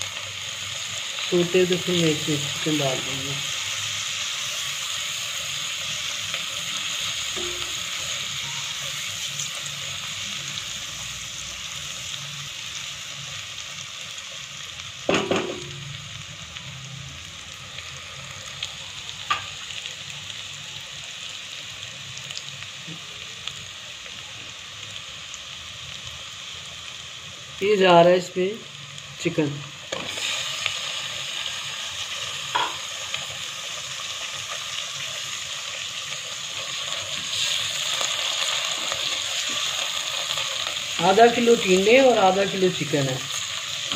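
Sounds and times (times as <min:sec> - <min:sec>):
onions sizzling in hot oil: 0:00.0 - 0:43.9.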